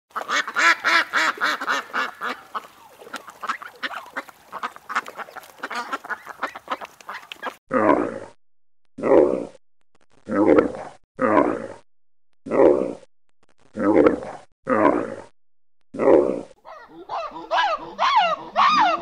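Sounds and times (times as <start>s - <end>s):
ducks quacking: 0.1s - 7.6s, 16.6s - 19.0s
camel grunting: 10.3s - 11.8s, 13.8s - 15.3s, 16.0s - 16.6s.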